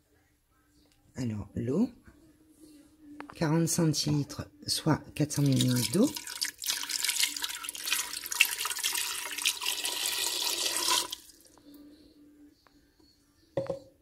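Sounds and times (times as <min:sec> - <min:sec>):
water pouring into a bowl: 0:05.3 - 0:11.4.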